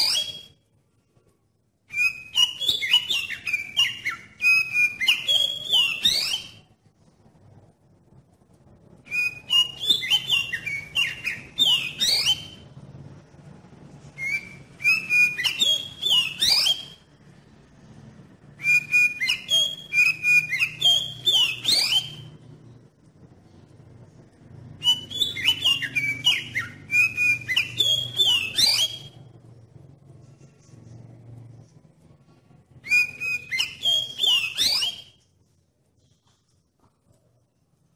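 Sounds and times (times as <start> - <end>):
bird whistling song: 0.0 - 0.6, 1.9 - 6.7, 9.0 - 12.8, 14.0 - 17.1, 18.5 - 22.5, 24.7 - 29.3, 32.7 - 35.3.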